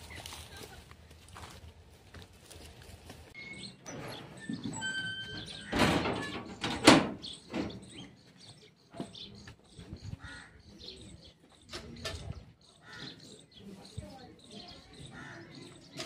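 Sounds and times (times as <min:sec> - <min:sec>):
birds chirping faintly: 0:02.5 - 0:16.0
metal door scraping: 0:03.4 - 0:08.0
metal door clanging shut: 0:03.7 - 0:08.0.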